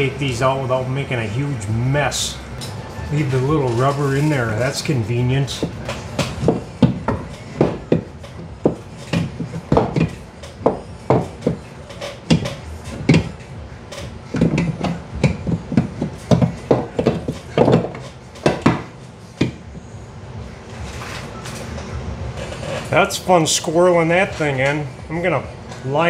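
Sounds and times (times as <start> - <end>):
metal knocks and clunks: 5.5 - 19.8.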